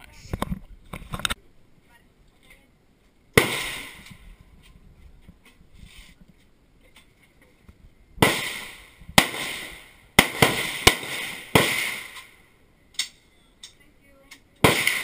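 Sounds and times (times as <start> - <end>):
rifle shots with echo: 3.4 - 4.1, 8.2 - 12.4, 14.6 - 15.0.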